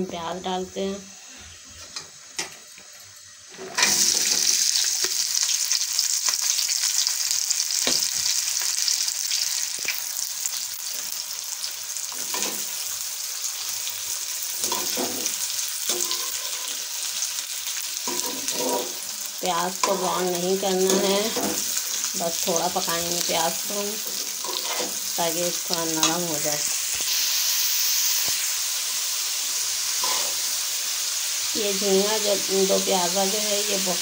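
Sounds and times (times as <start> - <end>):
onions sizzling in hot oil: 0.0 - 34.0
spoon scraping onions in pan: 14.6 - 16.9, 18.0 - 19.1, 19.7 - 22.0, 24.0 - 25.2, 30.0 - 30.5.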